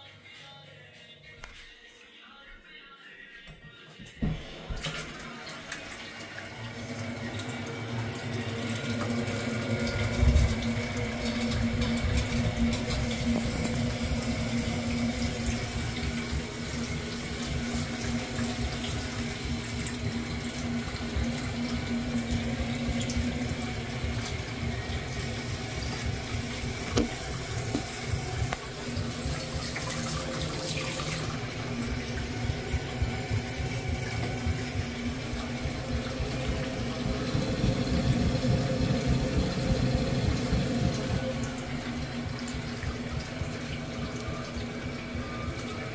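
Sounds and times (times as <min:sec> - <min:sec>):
water running from a tap: 0:04.2 - 0:45.9
low steady hum: 0:06.6 - 0:45.9.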